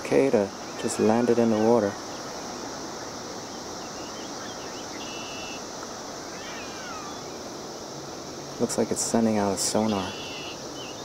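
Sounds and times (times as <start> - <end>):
cicada chorus droning: 0.0 - 11.0
birds chirping and whistling: 3.0 - 5.6, 6.2 - 7.4, 9.8 - 11.0.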